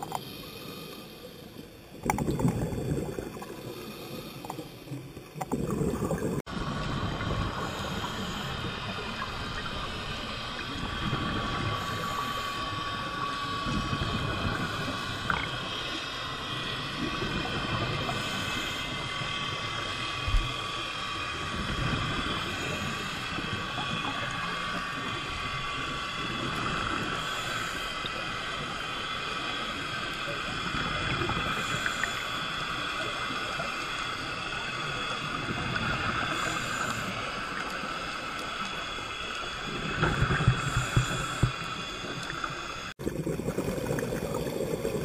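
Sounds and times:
scuba regulator breathing bubbles: 0:00.0 - 0:15.7, 0:30.6 - 0:33.8, 0:34.8 - 0:38.7, 0:39.6 - 0:45.0.

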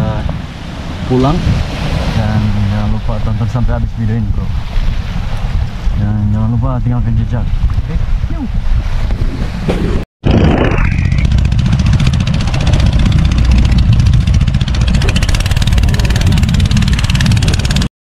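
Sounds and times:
boat engine puttering: 0:10.8 - 0:17.9.

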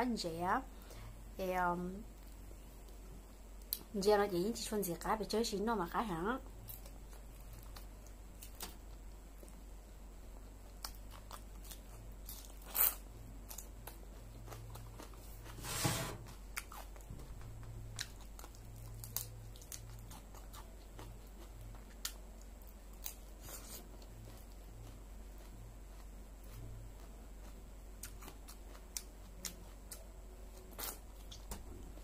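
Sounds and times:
crunchy chewing of raw vegetables: 0:06.6 - 0:15.6, 0:16.2 - 0:32.0.

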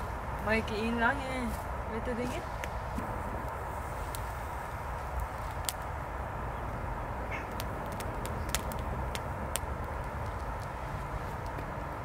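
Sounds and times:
campfire crackling: 0:00.0 - 0:12.0
low fire rumble: 0:00.0 - 0:12.0
kindling popping: 0:05.0 - 0:06.0, 0:07.3 - 0:11.8.

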